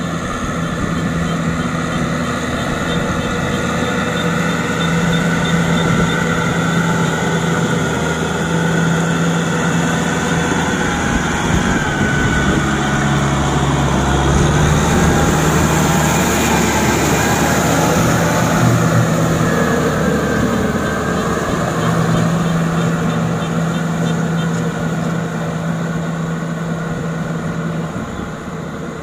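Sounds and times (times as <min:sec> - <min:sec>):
tractor diesel engine under load: 0:00.0 - 0:29.0.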